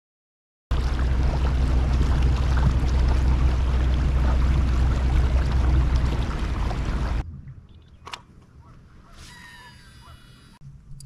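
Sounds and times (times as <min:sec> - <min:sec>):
rushing water: 0:00.7 - 0:07.2
wind rumble on microphone: 0:00.7 - 0:09.8.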